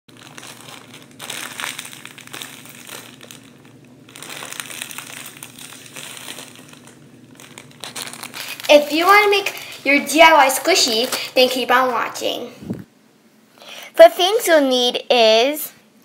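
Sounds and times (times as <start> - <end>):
plastic bag crinkling: 0.1 - 12.5.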